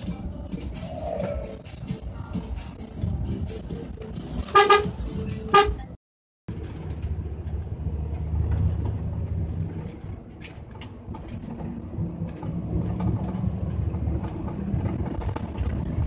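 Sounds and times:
road noise: 0:00.0 - 0:16.0
truck engine rumble: 0:00.0 - 0:16.0
vehicle horn blasts: 0:04.4 - 0:05.9.

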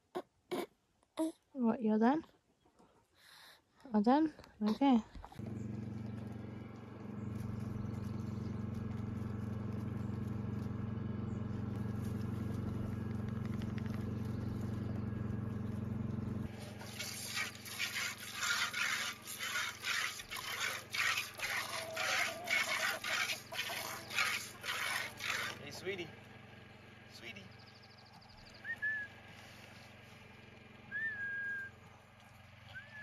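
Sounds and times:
low mechanical hum: 0:02.9 - 0:33.0
milk squirting into metal bowl: 0:16.7 - 0:25.6.

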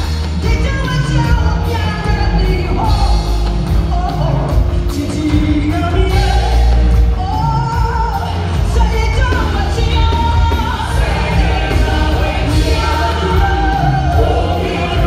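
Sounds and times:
band with heavy bass: 0:00.0 - 0:15.0
women's vocal group singing: 0:06.0 - 0:15.0.

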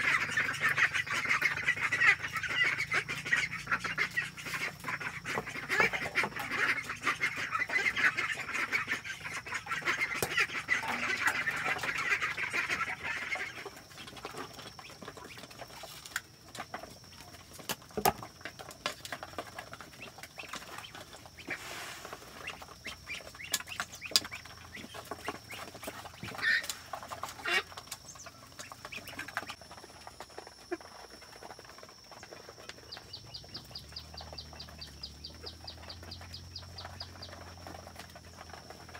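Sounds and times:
ducks quacking: 0:00.0 - 0:15.4, 0:20.0 - 0:29.6
sharp clicks of ducks eating: 0:00.0 - 0:38.9.

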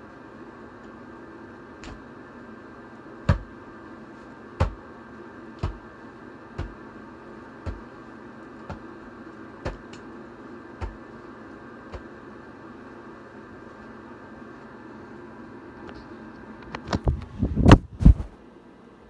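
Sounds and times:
electrical hum: 0:00.0 - 0:19.0
dull thumps: 0:03.2 - 0:03.5, 0:04.6 - 0:04.8, 0:05.6 - 0:05.8.

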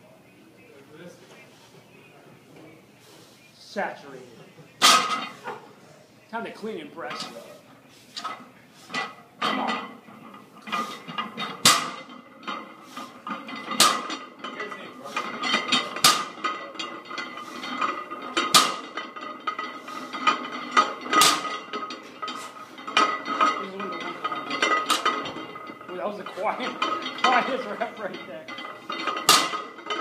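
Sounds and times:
barbell clanking on rubber floor: 0:04.8 - 0:05.6, 0:09.0 - 0:30.0
iron plates rattling: 0:04.8 - 0:05.7, 0:07.0 - 0:30.0.

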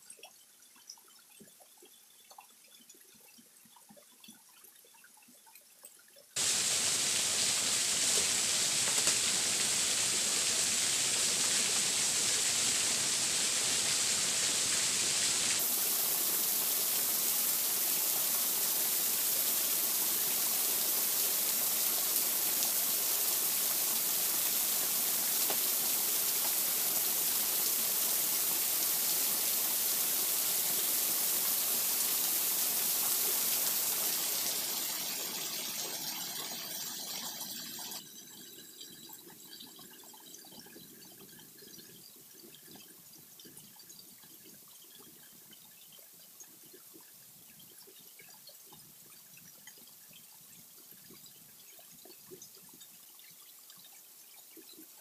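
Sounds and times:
waterfall rushing over rocks: 0:06.4 - 0:38.0.

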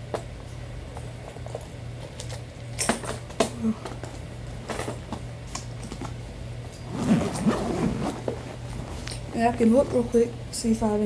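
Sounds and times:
steady low hum: 0:00.0 - 0:11.0
zipper pulls: 0:06.8 - 0:09.2
backpack clicks and rustles: 0:06.8 - 0:10.1.

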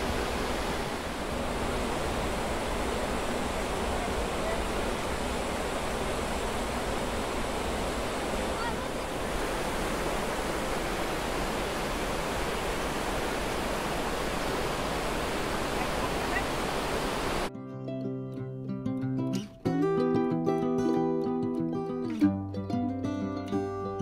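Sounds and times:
waterfall roaring: 0:00.0 - 0:17.5.

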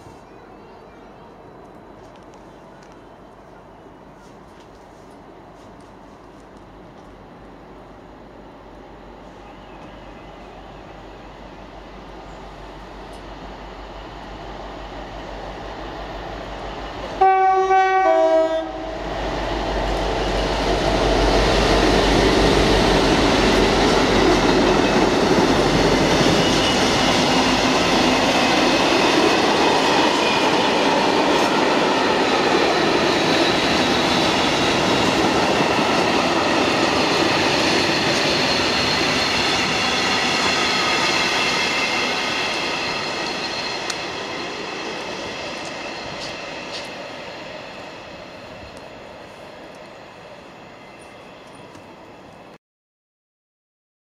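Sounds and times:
locomotive two-tone horn: 0:17.2 - 0:19.1
train wheels rumbling and clattering: 0:18.9 - 0:50.0.

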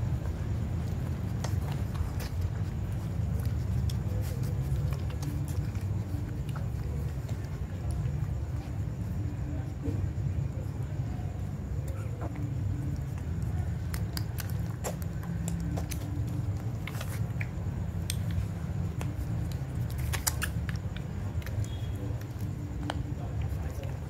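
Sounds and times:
puppies suckling wet smacks: 0:00.0 - 0:08.9, 0:11.8 - 0:24.0
steady low hum: 0:00.0 - 0:24.0
faint puppy squeaks: 0:11.8 - 0:13.7.

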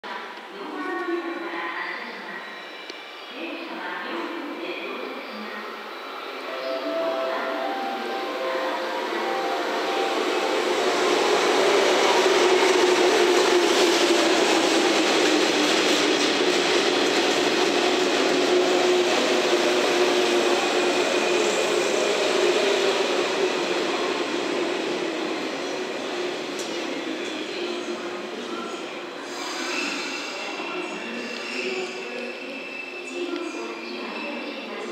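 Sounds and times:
train wheels rumbling: 0:06.6 - 0:27.3.

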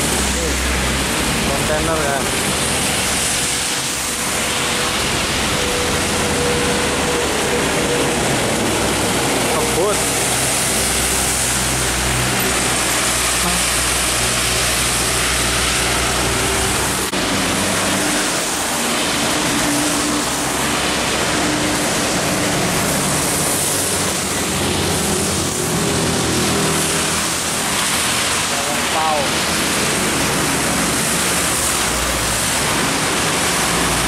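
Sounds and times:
diesel engines: 0:00.0 - 0:34.0
hiss of rain and tyre spray: 0:00.0 - 0:34.0
trucks driving past: 0:00.0 - 0:34.0.

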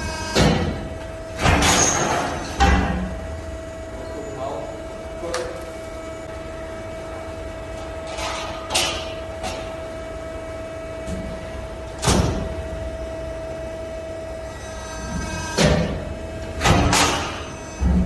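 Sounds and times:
loud metallic clunk and thud: 0:00.3 - 0:03.2, 0:12.0 - 0:12.6, 0:15.6 - 0:16.0, 0:16.6 - 0:18.0.

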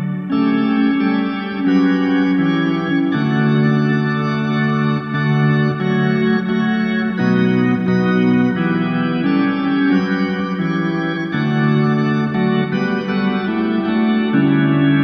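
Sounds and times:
organ-like chorale chords: 0:00.0 - 0:15.0.

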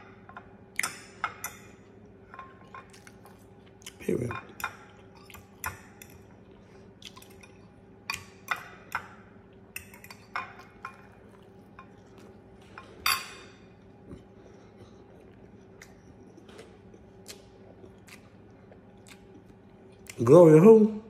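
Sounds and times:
faint steady hum: 0:00.0 - 0:21.0
metal fork clinking on a dish: 0:09.8 - 0:11.2, 0:12.7 - 0:13.7.

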